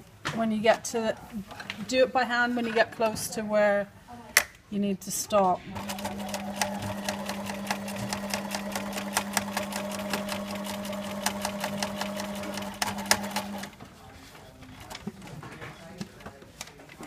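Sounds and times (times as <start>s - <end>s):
sewing machine motor hum: 5.8s - 13.8s.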